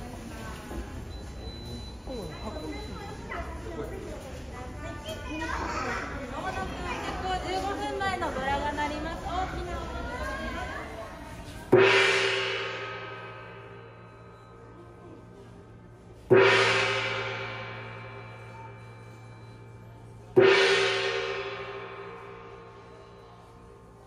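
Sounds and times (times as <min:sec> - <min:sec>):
gong ringing: 0:11.7 - 0:24.0.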